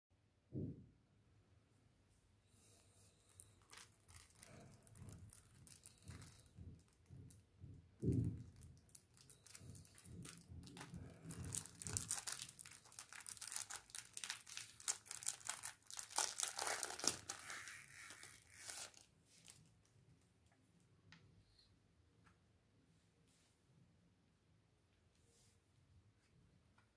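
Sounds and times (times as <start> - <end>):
shrink wrap crackling: 3.1 - 7.4, 8.0 - 20.0.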